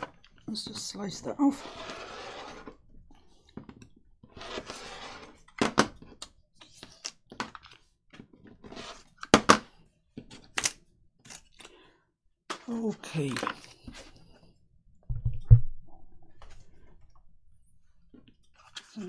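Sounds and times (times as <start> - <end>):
paper scraping stroke: 1.5 - 2.8, 4.3 - 5.4.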